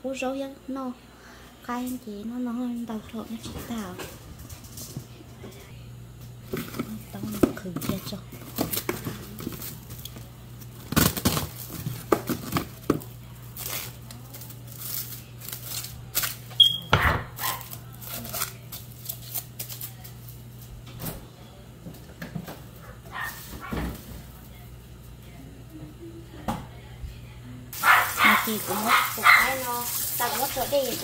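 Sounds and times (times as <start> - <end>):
steady low hum: 0.0 - 29.4
plastic bag crinkling: 6.5 - 16.5, 17.4 - 20.3.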